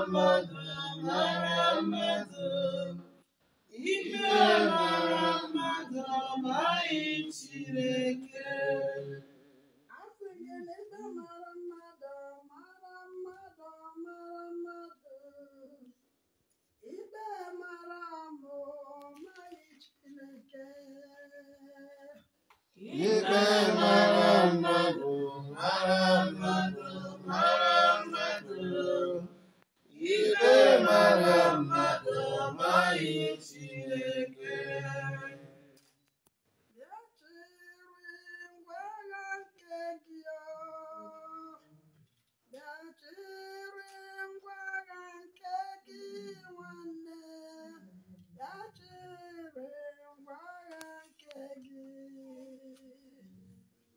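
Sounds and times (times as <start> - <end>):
group singing: 0.0 - 3.2, 3.8 - 9.3, 22.8 - 35.8
person singing softly: 42.5 - 53.6.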